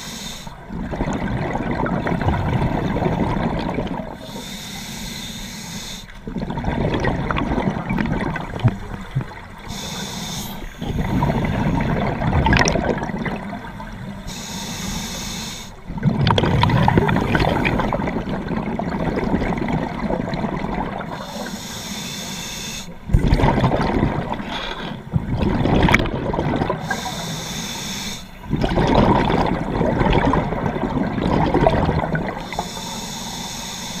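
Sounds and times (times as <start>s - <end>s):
regulator hissing inhale: 0.0s - 0.7s, 4.2s - 6.2s, 9.6s - 11.8s, 13.8s - 15.8s, 21.2s - 23.0s, 26.8s - 28.4s, 32.4s - 34.0s
gurgle of exhaled bubbles: 0.6s - 4.2s, 6.2s - 9.6s, 10.8s - 14.1s, 15.8s - 21.2s, 23.0s - 27.0s, 28.4s - 32.5s.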